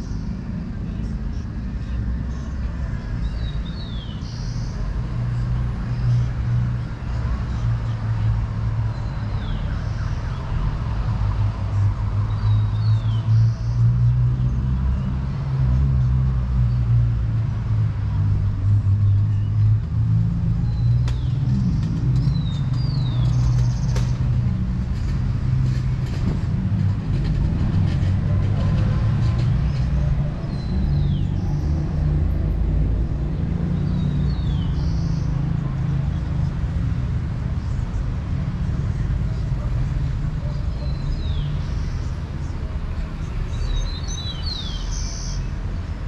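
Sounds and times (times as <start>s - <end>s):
vehicle engines humming: 0.0s - 46.0s.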